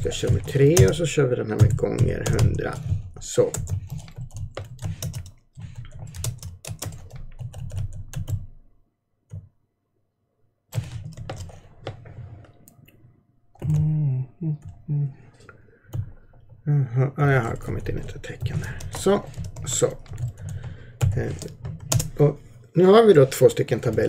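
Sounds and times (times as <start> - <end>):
man's voice: 0.0 - 3.6.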